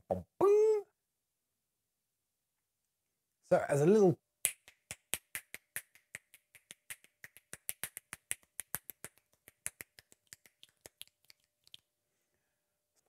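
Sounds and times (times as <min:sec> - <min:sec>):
fingers snapping: 0:04.4 - 0:11.9.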